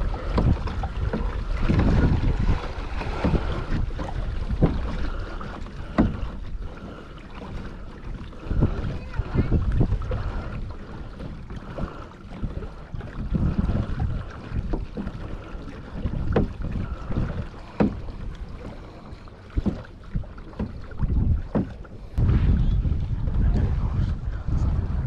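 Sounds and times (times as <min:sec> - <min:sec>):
wind gusting on microphone: 0:00.0 - 0:05.3, 0:08.2 - 0:11.0, 0:22.2 - 0:25.0
water washing along kayak hull: 0:00.0 - 0:25.0.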